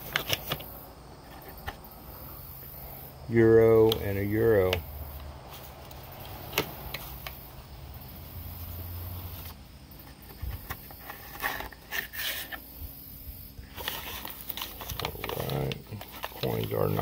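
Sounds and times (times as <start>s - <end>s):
plastic bags rustling: 13.7s - 17.0s.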